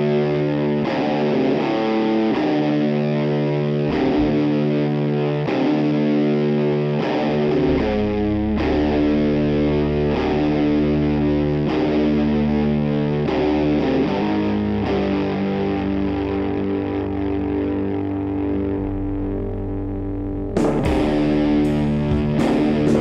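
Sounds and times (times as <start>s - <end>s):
fuzz-distorted electric guitar chords: 0.0s - 23.0s
low bass line: 3.2s - 5.2s, 7.2s - 13.8s, 15.6s - 23.0s.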